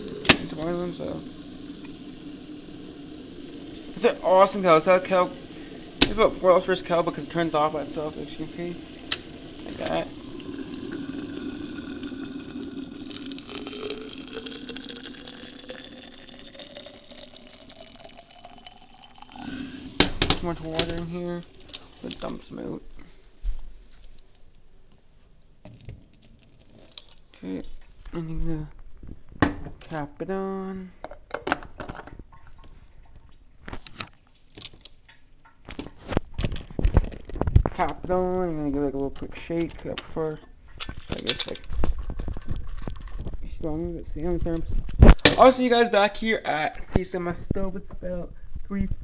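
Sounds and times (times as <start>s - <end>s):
water pouring into a jar: 0.0s - 22.5s, 41.0s - 43.7s.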